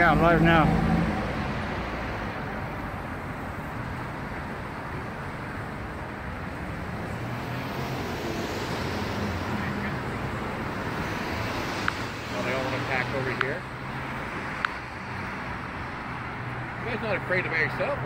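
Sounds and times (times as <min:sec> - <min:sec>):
cars driving past: 0:00.0 - 0:18.0.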